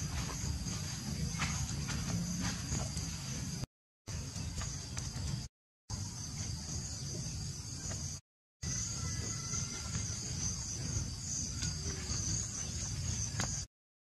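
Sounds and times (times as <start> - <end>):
insects chirring: 0.0 - 13.7.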